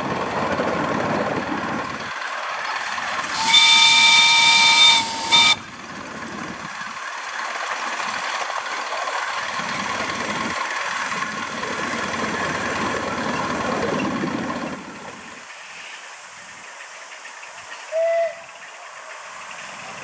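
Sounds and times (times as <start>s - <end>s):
wheels rumbling on rail: 0.0s - 20.0s
steam hiss: 2.3s - 5.6s, 14.5s - 20.0s
steam whistle toot: 3.3s - 5.7s, 17.9s - 18.5s.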